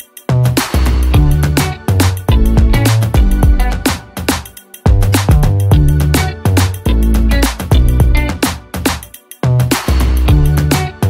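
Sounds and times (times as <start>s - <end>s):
bass line: 0.3s - 3.9s, 4.9s - 8.4s, 9.5s - 11.0s
drum hits: 4.3s - 5.9s.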